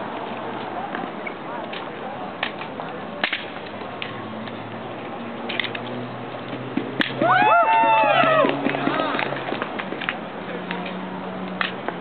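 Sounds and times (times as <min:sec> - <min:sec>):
rifles slapped and clicked: 0:02.4 - 0:04.2, 0:09.8 - 0:12.0.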